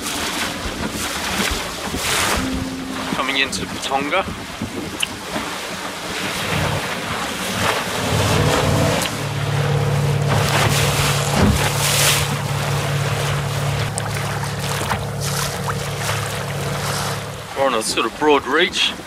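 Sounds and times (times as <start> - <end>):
water rushing along hull: 0.0 - 19.0
wind buffeting microphone: 0.4 - 9.0.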